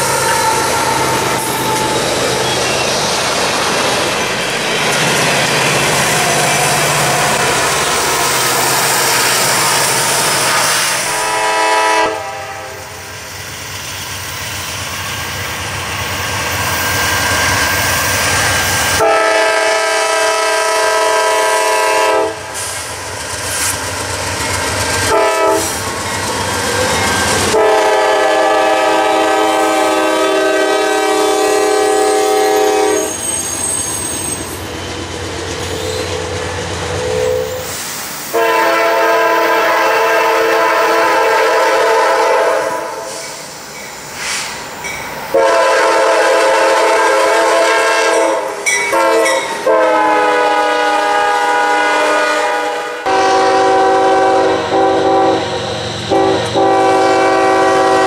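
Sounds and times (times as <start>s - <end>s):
locomotive air horn blasts: 0.0s - 1.9s, 9.4s - 13.1s, 18.9s - 22.6s, 25.0s - 25.8s, 27.5s - 33.2s, 38.3s - 43.3s, 45.3s - 58.0s
freight train rumble and clatter: 0.0s - 58.0s.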